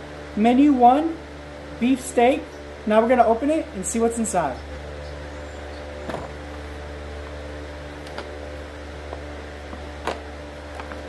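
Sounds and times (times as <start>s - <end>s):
mechanical hum: 0.0s - 11.0s.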